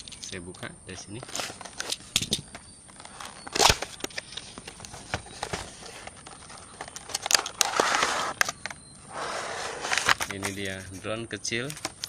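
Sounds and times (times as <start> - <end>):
packaging rustling: 2.9 - 11.0
clicks and scrapes: 3.0 - 11.1
cardboard flap ripping: 3.5 - 4.0.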